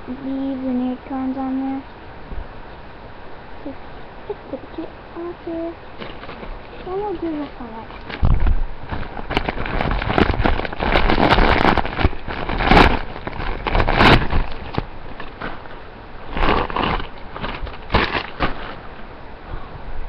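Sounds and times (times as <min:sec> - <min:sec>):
fabric and plastic wrapping rustling: 0:05.9 - 0:19.0.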